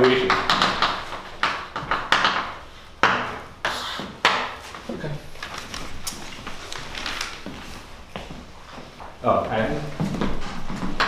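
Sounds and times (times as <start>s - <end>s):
chalk tapping on blackboard: 0.0s - 4.8s
chalk scraping: 3.6s - 4.2s.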